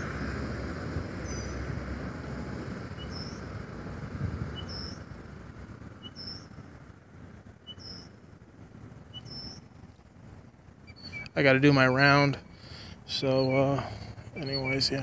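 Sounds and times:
low background rumble: 0.0 - 15.0
bird two-part call: 7.6 - 8.1, 10.9 - 11.4.

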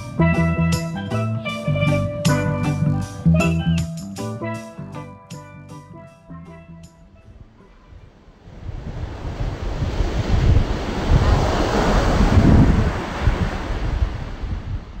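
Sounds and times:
wind buffeting microphone: 6.9 - 15.0
surf breaking on a beach: 7.6 - 15.0.

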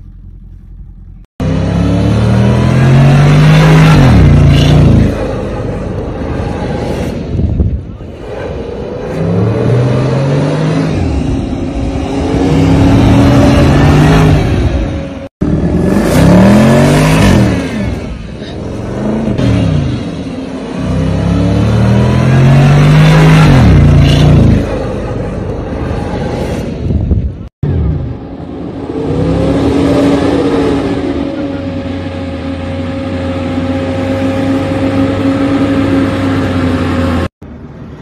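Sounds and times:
engine revving hard: 1.4 - 7.5, 8.1 - 25.2.

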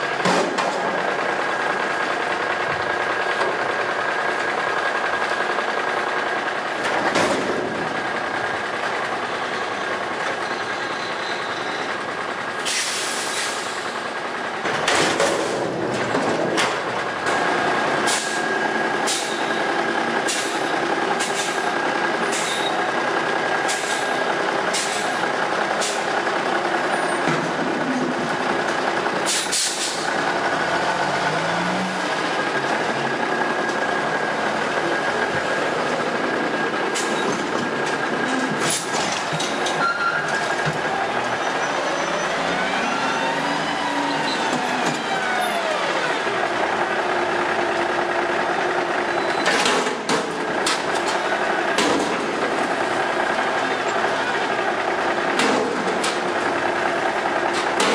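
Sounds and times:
garbage truck diesel engine: 0.0 - 57.9.

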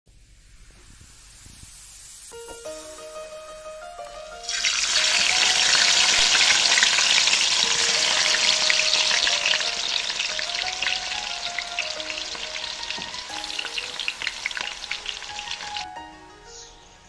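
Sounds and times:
onion sizzling in hot oil: 0.1 - 3.2, 4.3 - 15.9
soft background music: 2.2 - 17.0.

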